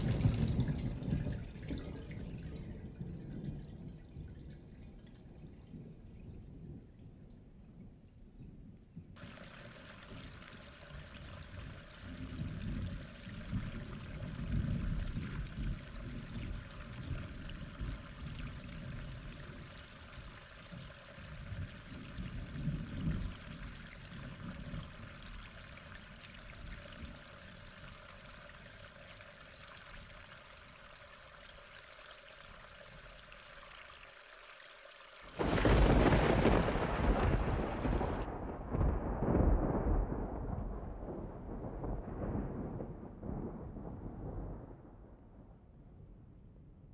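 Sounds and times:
loud thunderclap: 0:00.0 - 0:03.8, 0:35.4 - 0:46.1
rolling thunder: 0:00.0 - 0:04.8, 0:09.2 - 0:28.4, 0:35.4 - 0:46.9
rain hiss: 0:00.0 - 0:06.8, 0:09.2 - 0:38.3.

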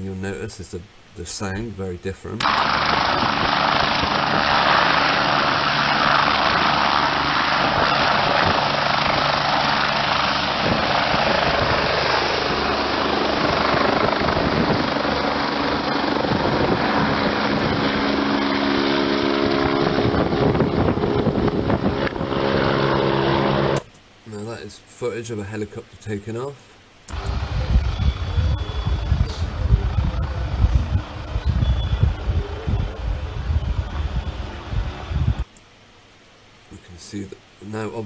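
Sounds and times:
low hum of steady tones: 0:00.0 - 0:38.0
helicopter turbine and rotor noise: 0:02.4 - 0:23.9, 0:27.1 - 0:35.5.

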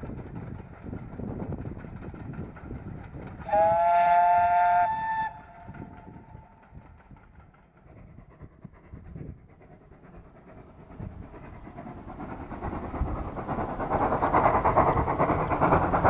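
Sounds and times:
steam locomotive running: 0:00.0 - 0:16.0
steam whistle blast: 0:03.5 - 0:05.7.

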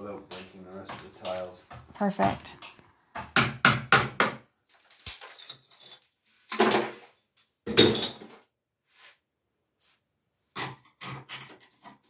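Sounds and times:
hammer and chisel on tiles: 0:00.0 - 0:04.5, 0:10.5 - 0:12.0
tile and mortar crunching: 0:04.6 - 0:07.1.

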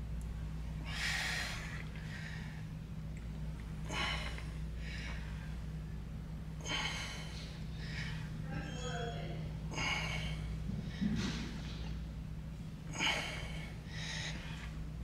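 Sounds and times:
low hum: 0:00.0 - 0:15.0
man breathing hard: 0:00.8 - 0:02.8, 0:03.8 - 0:05.8, 0:06.6 - 0:08.4, 0:09.7 - 0:11.6, 0:12.9 - 0:14.9.

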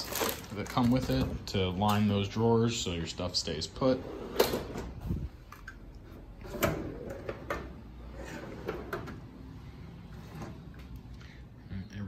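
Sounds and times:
metal drawers sliding: 0:03.9 - 0:05.2, 0:06.1 - 0:09.4.

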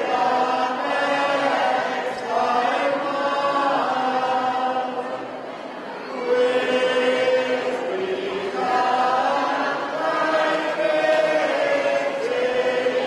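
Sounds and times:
group singing a hymn: 0:00.0 - 0:13.0.

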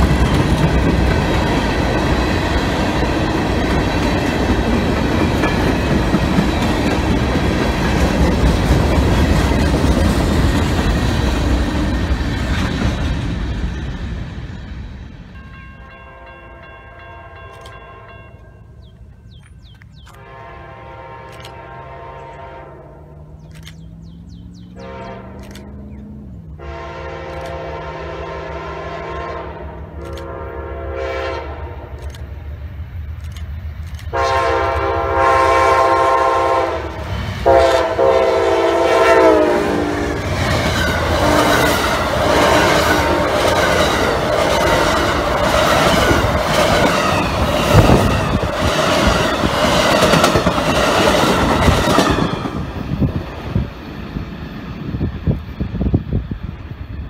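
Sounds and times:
train rumbling past: 0:00.0 - 0:57.0
train horn blasts: 0:20.1 - 0:23.2, 0:24.7 - 0:25.8, 0:26.5 - 0:32.0, 0:34.1 - 0:40.2, 0:41.2 - 0:43.6.

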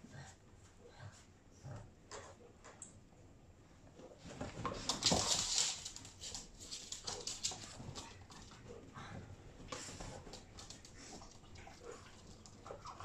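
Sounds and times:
dogs scuffling and rustling: 0:04.0 - 0:13.0.

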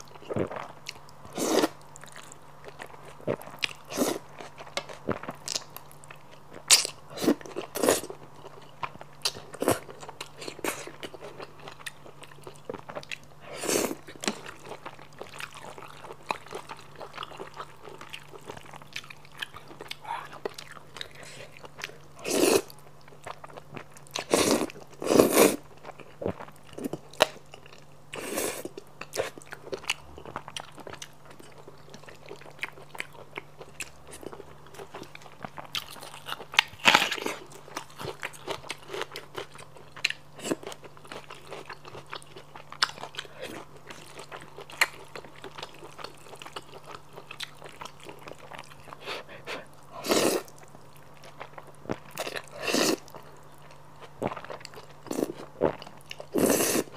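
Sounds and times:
wet chewing and smacking: 0:00.0 - 0:13.3, 0:14.0 - 0:22.1, 0:25.6 - 0:49.1.

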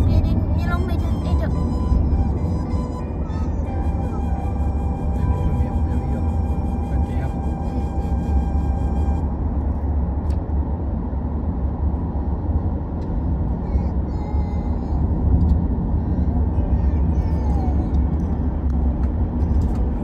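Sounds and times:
car engine and tyre rumble: 0:00.0 - 0:20.0.

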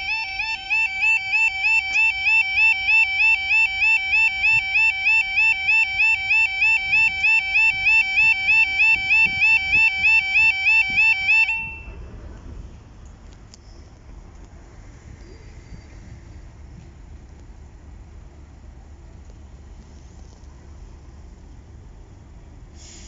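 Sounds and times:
level crossing warbling alarm: 0:00.0 - 0:12.0.

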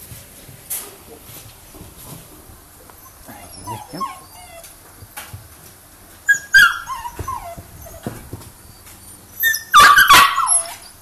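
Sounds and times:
puppy whimpering and yelping: 0:02.9 - 0:05.2, 0:06.2 - 0:11.0.

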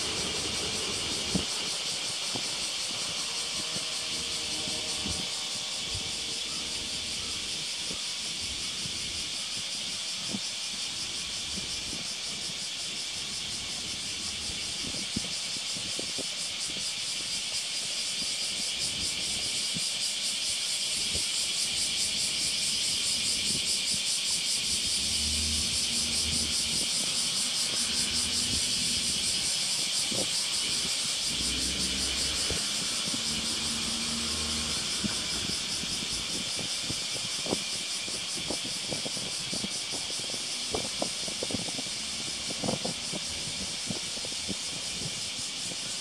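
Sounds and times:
car approaching: 0:00.0 - 0:07.7, 0:24.6 - 0:36.7
high-pitched hiss: 0:00.0 - 0:46.0.

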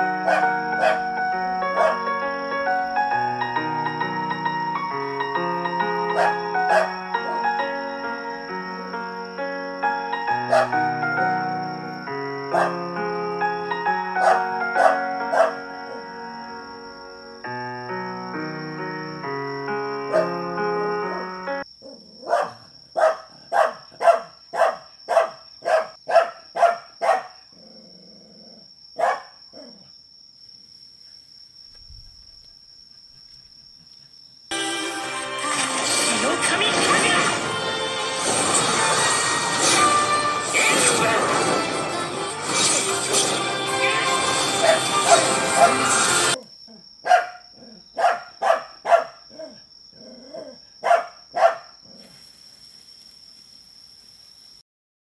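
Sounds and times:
dog barking: 0:00.2 - 0:02.0, 0:06.1 - 0:07.4, 0:10.4 - 0:10.8, 0:12.5 - 0:12.8, 0:14.2 - 0:16.0, 0:20.1 - 0:20.4, 0:21.8 - 0:27.5, 0:29.0 - 0:29.9, 0:44.6 - 0:46.0, 0:47.0 - 0:49.6, 0:50.3 - 0:51.8.

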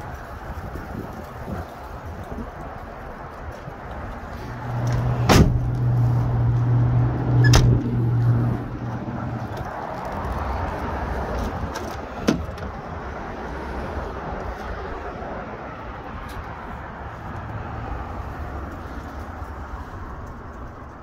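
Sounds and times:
car door clunking: 0:04.9 - 0:05.8, 0:07.4 - 0:07.9, 0:11.6 - 0:12.8.

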